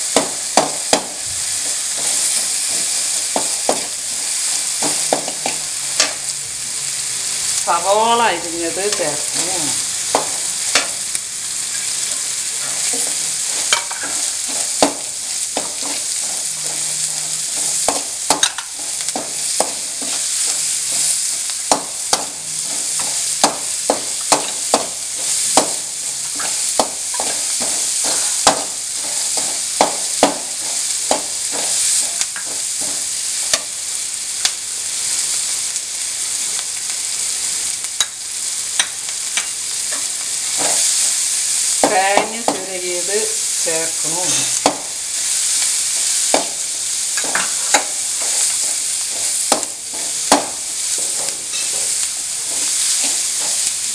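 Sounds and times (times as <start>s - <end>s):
onion frying in oil: 0.0s - 53.9s
spatula scraping and knocking pan: 0.1s - 6.2s, 11.7s - 33.7s, 38.8s - 41.1s, 41.8s - 43.3s, 45.6s - 53.8s.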